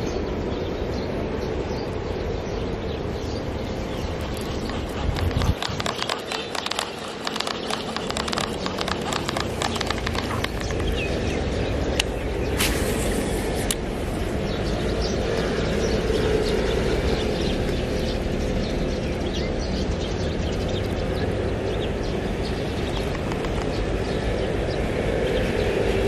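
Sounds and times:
road traffic rumble: 0.3s - 26.0s
sharp clicks: 4.2s - 12.8s, 22.8s - 24.0s.

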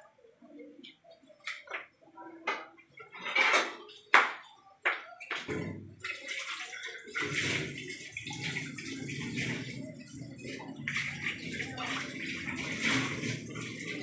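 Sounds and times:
metal kitchenware clanking: 2.6s - 4.2s.

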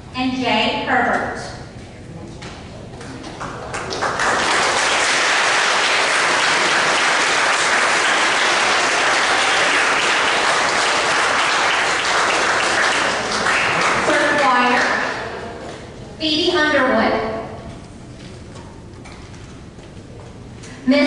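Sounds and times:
audience applauding: 3.4s - 15.5s.

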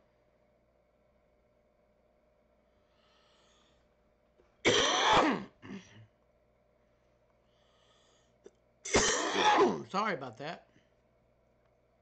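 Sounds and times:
man coughing: 4.7s - 6.0s, 8.9s - 9.9s.

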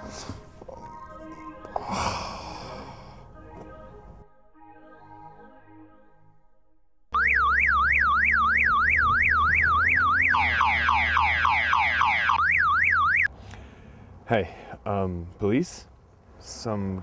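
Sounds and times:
car alarm warbling and chirping: 7.1s - 13.3s.

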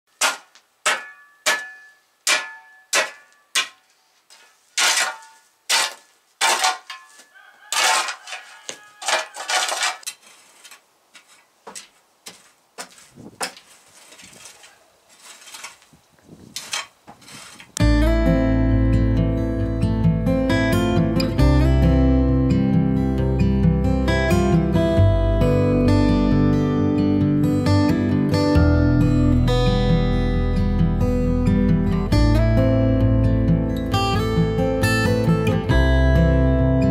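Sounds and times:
shovel scraping dirt floor: 0.1s - 18.0s
shovel chopping into dirt: 0.2s - 3.8s, 4.8s - 10.8s.

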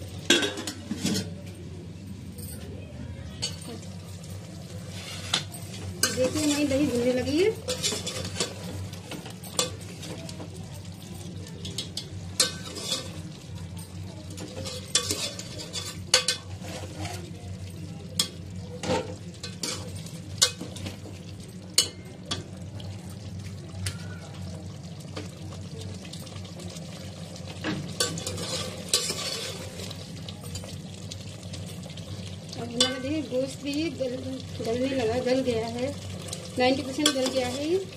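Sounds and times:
chicken sizzling in a metal pot: 0.0s - 2.3s, 3.2s - 37.9s
metal ladle scraping a pot: 4.8s - 6.8s, 7.6s - 8.8s, 12.4s - 13.2s, 14.6s - 17.3s, 28.0s - 29.8s.

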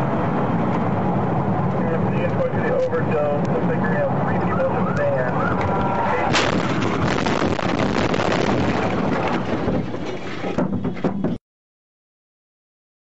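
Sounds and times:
police siren wailing: 3.8s - 6.3s
loud crash impact: 6.2s - 10.0s
harsh crashing noise: 6.2s - 11.4s.

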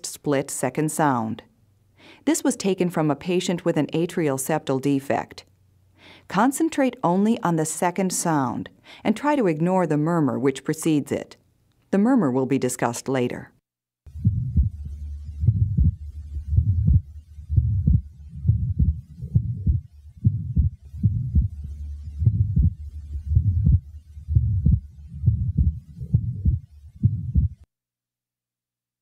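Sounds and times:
heartbeats: 14.1s - 27.7s
heart murmur: 14.2s - 27.7s.

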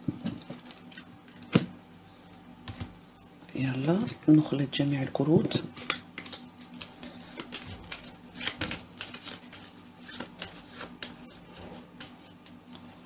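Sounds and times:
cards being shuffled: 5.6s - 13.0s.

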